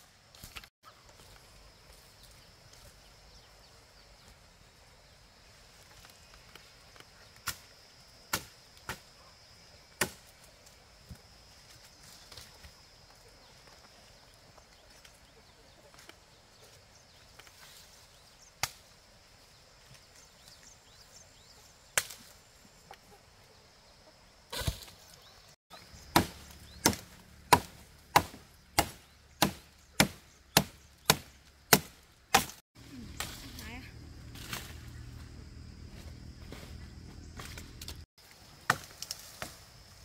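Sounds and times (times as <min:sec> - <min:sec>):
chopping wood: 0:08.3 - 0:09.0, 0:10.0 - 0:10.3, 0:26.1 - 0:32.6, 0:38.6 - 0:39.6.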